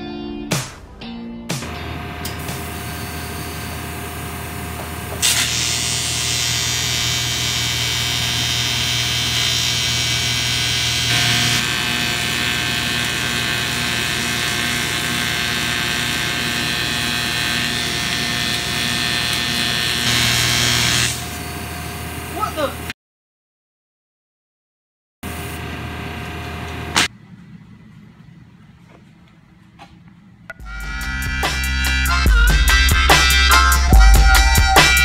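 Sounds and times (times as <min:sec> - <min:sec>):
welder machine hum: 0:01.6 - 0:22.9, 0:25.2 - 0:28.8
welding arc buzzing hiss: 0:01.6 - 0:22.9, 0:25.2 - 0:27.1.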